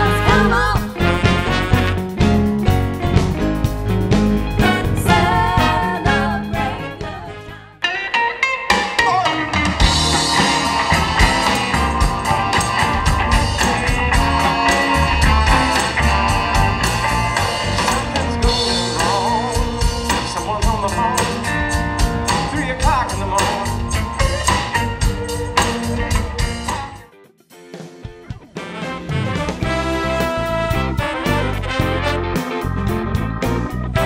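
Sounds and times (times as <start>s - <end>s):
person singing: 0.0s - 1.2s, 4.6s - 7.8s, 17.5s - 24.6s
bass: 0.0s - 27.1s, 28.3s - 34.0s
electric guitar: 0.0s - 34.0s
drum beat: 9.6s - 27.0s.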